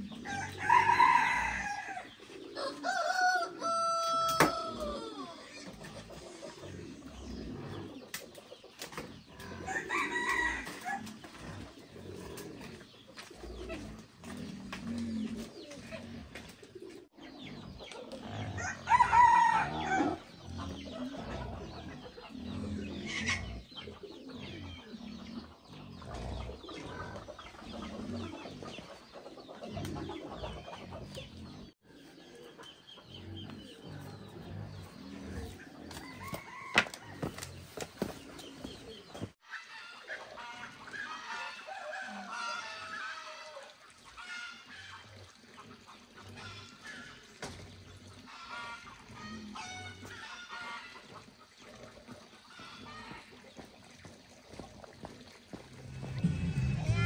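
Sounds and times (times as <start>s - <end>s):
hens clucking: 0.0s - 57.0s
rooster crowing: 0.3s - 2.0s, 2.6s - 5.1s, 18.6s - 20.2s.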